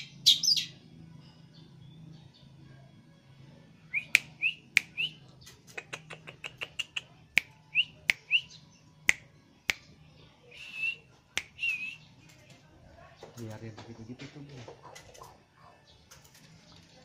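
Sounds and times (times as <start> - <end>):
bird chirping and clicking: 4.0 - 8.4, 14.6 - 16.9.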